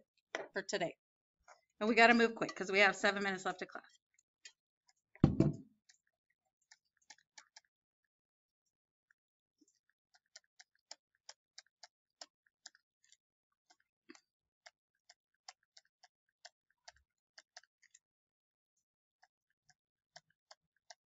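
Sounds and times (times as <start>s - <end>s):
stylus tapping on tablet screen: 5.2s - 5.6s.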